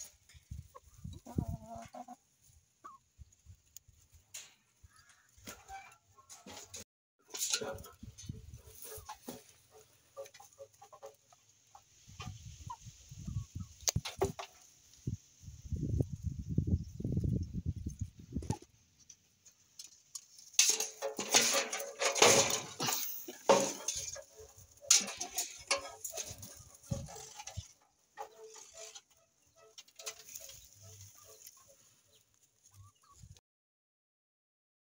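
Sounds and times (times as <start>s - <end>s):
chickens clucking: 0.0s - 15.2s, 16.7s - 33.4s
metallic clattering and rattling: 6.3s - 11.1s, 19.8s - 31.4s.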